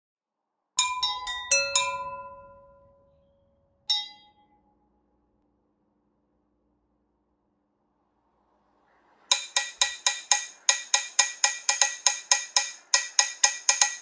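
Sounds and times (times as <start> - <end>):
tuned desk bells ringing: 0.8 - 4.8.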